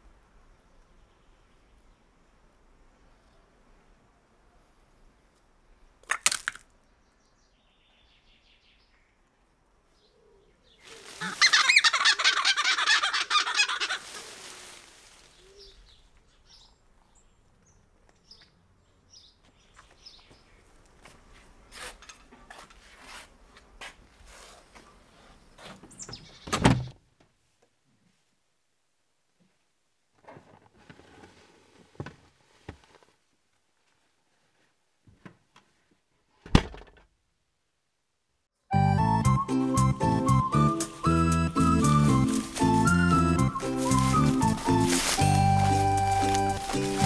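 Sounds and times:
chicken cackling: 0:10.8 - 0:14.8.

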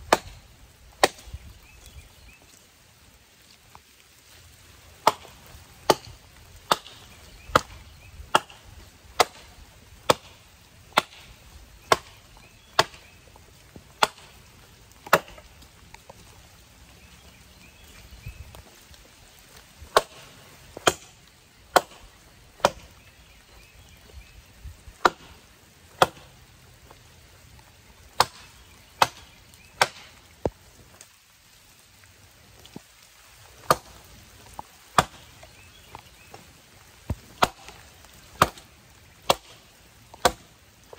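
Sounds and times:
axe chopping wood: 0:00.1 - 0:00.4, 0:01.0 - 0:01.3, 0:05.0 - 0:08.6, 0:09.2 - 0:12.2, 0:12.8 - 0:13.0, 0:14.0 - 0:14.4, 0:15.0 - 0:15.4, 0:19.9 - 0:23.0, 0:25.0 - 0:25.4, 0:26.0 - 0:26.3, 0:28.2 - 0:30.1, 0:33.6 - 0:34.0, 0:34.9 - 0:35.3, 0:37.1 - 0:37.8, 0:38.4 - 0:40.5.

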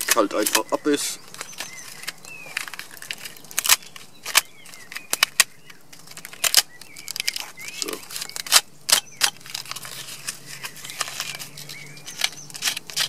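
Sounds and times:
knife scraping bark: 0:06.3 - 0:13.0.

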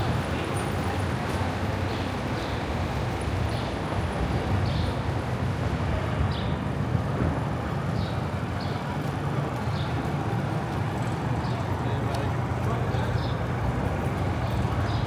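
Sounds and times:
low rumble of passing vehicles: 0:00.0 - 0:15.0.

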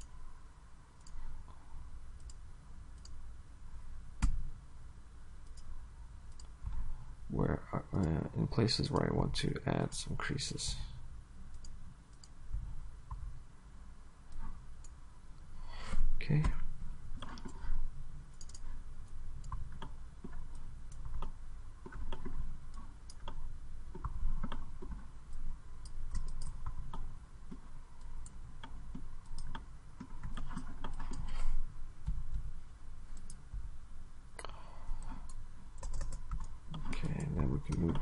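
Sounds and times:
low background hum: 0:00.0 - 0:38.0
computer mouse clicking: 0:01.0 - 0:01.6, 0:02.2 - 0:02.4, 0:03.0 - 0:03.2, 0:05.4 - 0:05.7, 0:06.3 - 0:06.8, 0:11.5 - 0:12.4, 0:14.3 - 0:15.0, 0:16.4 - 0:32.5, 0:33.1 - 0:33.5, 0:34.4 - 0:38.0.

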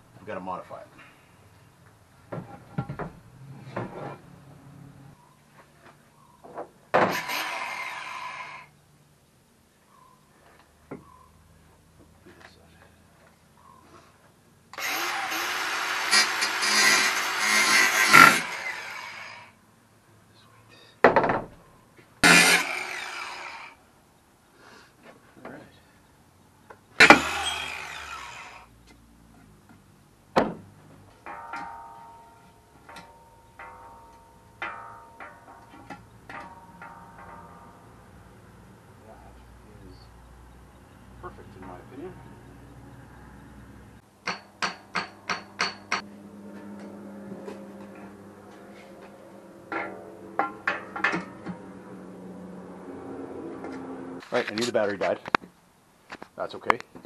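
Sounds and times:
angle grinder on steel: 0:07.1 - 0:08.7, 0:14.8 - 0:19.6, 0:22.2 - 0:23.8, 0:27.0 - 0:28.7
steel tubing ringing: 0:31.2 - 0:35.7.

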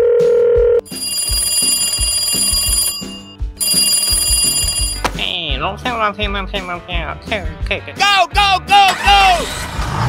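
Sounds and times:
background music with steady beat: 0:00.2 - 0:09.2
high bright ringing alarm bell: 0:00.9 - 0:05.0.

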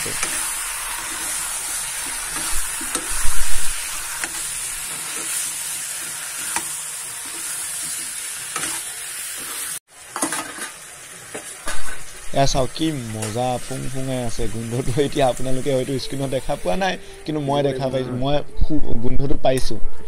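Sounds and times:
metal spatula scraping a pan: 0:00.0 - 0:12.1
food sizzling in hot oil: 0:00.0 - 0:17.2.

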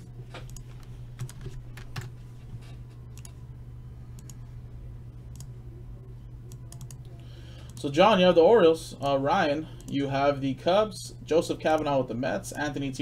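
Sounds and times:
keyboard and mouse clicks: 0:00.0 - 0:02.1, 0:03.1 - 0:03.4, 0:04.2 - 0:04.4, 0:06.5 - 0:07.8
low hum: 0:00.0 - 0:13.0.

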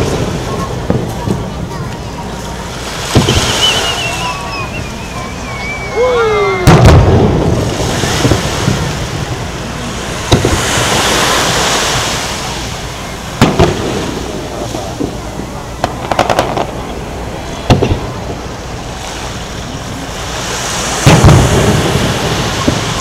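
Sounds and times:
firework deep boom: 0:03.0 - 0:05.7, 0:06.6 - 0:11.1, 0:13.4 - 0:18.5, 0:21.0 - 0:23.0
firework launching whistle: 0:03.0 - 0:07.2, 0:21.0 - 0:23.0.

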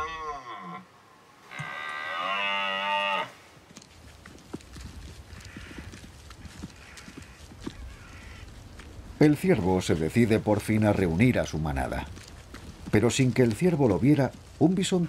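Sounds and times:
deer stag bellowing: 0:00.0 - 0:00.9
hooves trotting on turf: 0:03.6 - 0:15.0.

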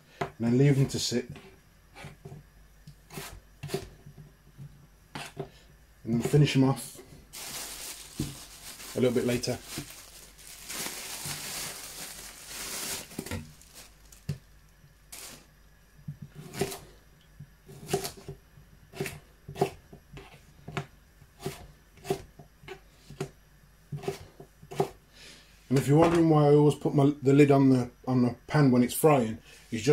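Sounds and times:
plastic bag rustling: 0:06.4 - 0:15.5.

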